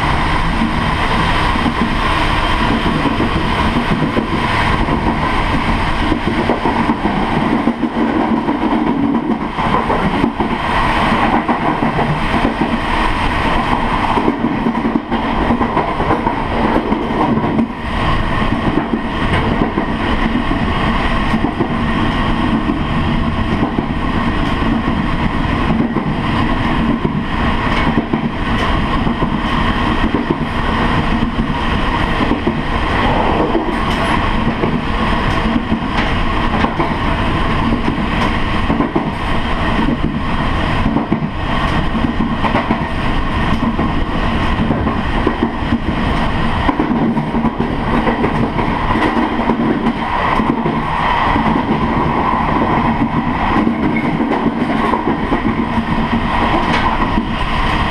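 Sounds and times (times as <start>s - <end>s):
train wheels rolling on rails: 0.0s - 57.9s
faint rail clicks: 25.7s - 40.2s, 44.6s - 57.9s.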